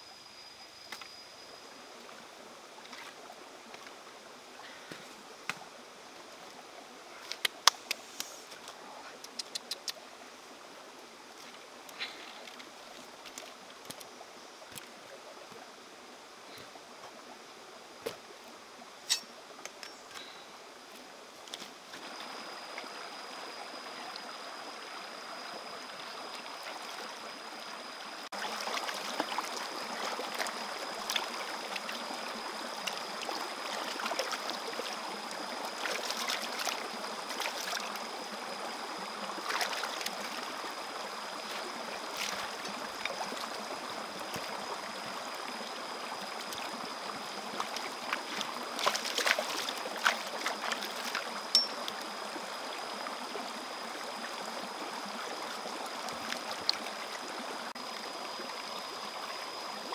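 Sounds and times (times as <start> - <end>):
stream running over rocks: 0.0 - 59.9
thin steady high tone: 51.5 - 52.0.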